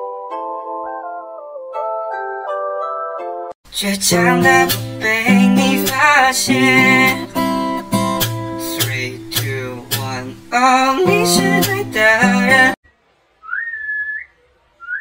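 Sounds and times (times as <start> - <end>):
strummed acoustic guitar music: 3.7 - 12.8.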